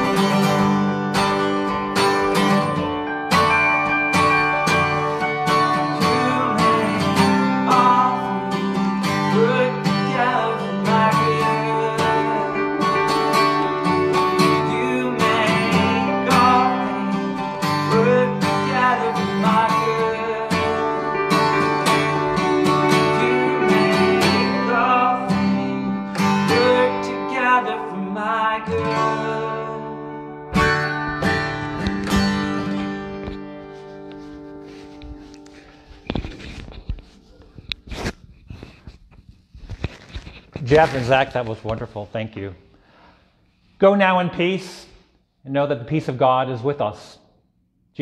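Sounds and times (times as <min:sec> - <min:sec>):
second guitar playing: 0:00.0 - 0:38.2
acoustic guitar strumming: 0:00.0 - 0:42.0.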